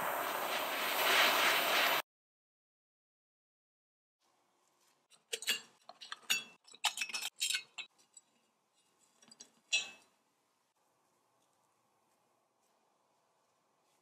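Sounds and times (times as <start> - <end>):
tin-plate parts clinking and scraping: 5.1 - 10.2.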